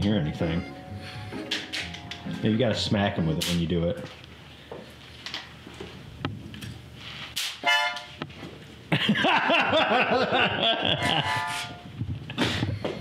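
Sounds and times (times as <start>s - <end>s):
harmonica chords: 0.0s - 3.9s, 7.6s - 8.2s, 10.8s - 11.9s.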